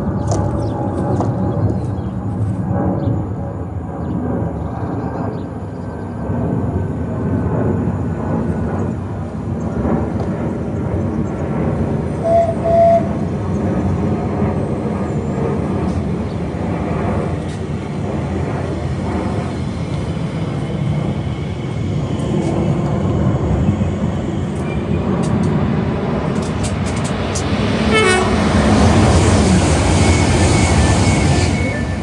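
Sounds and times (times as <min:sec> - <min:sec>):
rumble of wheels and motors: 0:00.0 - 0:32.0
electric train braking: 0:27.0 - 0:32.0.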